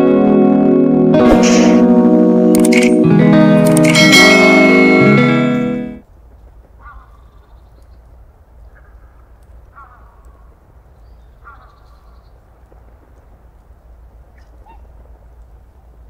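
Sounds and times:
bird calling: 8.7 - 12.4.

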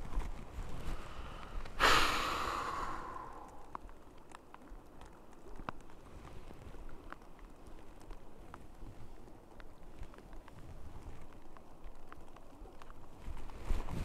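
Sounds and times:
breathy exhale: 0.9 - 3.8
faint clicks: 1.3 - 1.8, 2.5 - 14.0.

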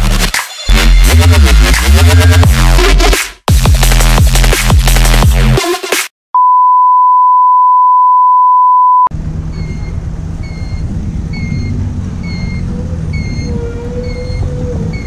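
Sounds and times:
steady electronic beep tone: 6.4 - 9.1
vehicle engine running: 9.1 - 15.0
wind and road noise: 9.1 - 15.0.

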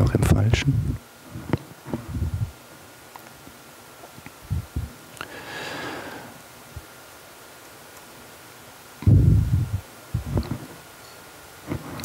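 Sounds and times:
breath-like rush: 5.2 - 6.4
faint steady high tone: 11.0 - 11.3.

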